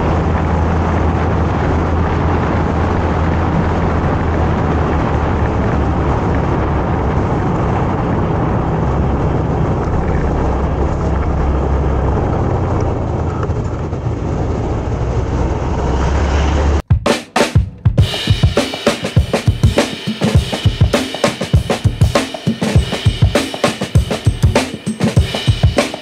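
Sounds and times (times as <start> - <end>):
wind rushing over microphone: 0.0 - 16.8
motorcycle engine and road rumble: 0.0 - 16.9.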